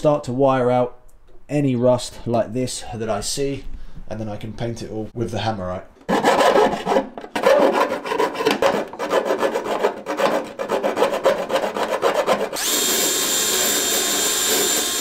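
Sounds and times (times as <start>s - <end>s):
metal file scraping steel floor: 6.1s - 12.6s
drill with wire brush whining: 12.5s - 15.0s.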